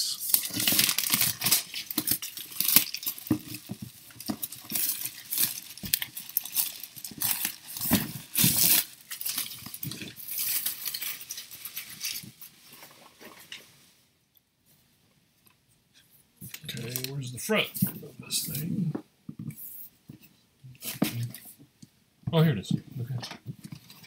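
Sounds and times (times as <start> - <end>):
plastic wrap crinkling: 0.0 - 13.8, 16.4 - 18.7, 23.4 - 24.0.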